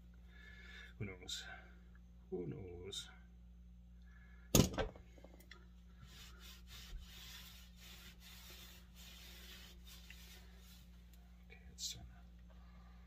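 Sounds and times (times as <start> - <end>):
cloth rag rubbing wood: 6.0 - 11.2.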